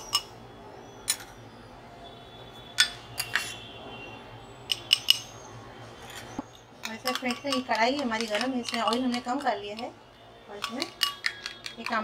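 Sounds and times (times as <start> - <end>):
glass ringing: 4.7 - 5.4, 10.6 - 12.0
spoon clinking glass bowl: 4.7 - 5.4, 6.0 - 9.9, 10.5 - 12.0.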